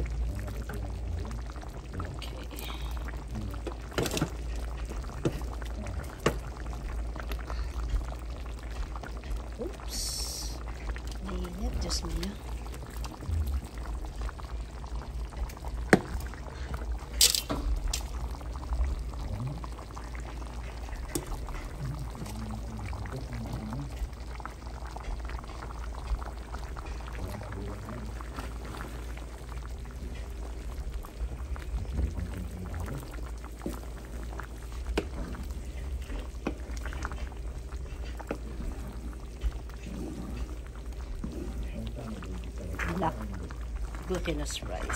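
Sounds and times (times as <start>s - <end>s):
rice bubbling in a pan: 0.0s - 44.9s
wooden spatula stirring: 3.6s - 9.6s, 25.0s - 31.3s, 32.4s - 44.9s.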